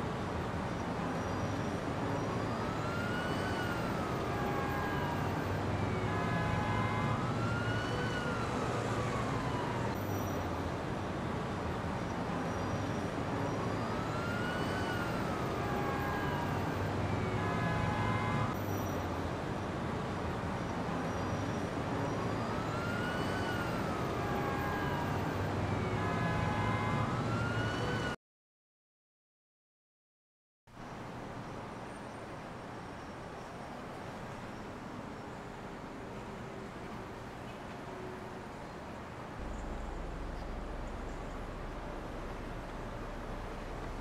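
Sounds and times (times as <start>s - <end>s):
low rumble of traffic: 0.0s - 28.2s, 30.7s - 44.0s
distant siren wailing: 1.6s - 10.7s, 13.1s - 19.2s, 21.9s - 28.2s, 39.4s - 44.0s.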